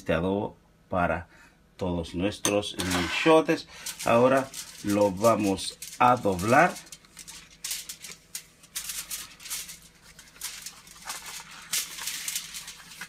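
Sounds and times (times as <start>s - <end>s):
leaf and foil crinkling: 2.8s - 13.0s.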